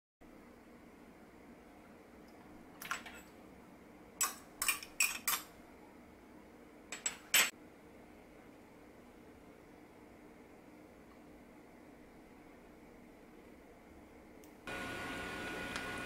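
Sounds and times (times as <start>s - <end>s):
metal spoon clinking on bowl: 4.2s - 5.5s.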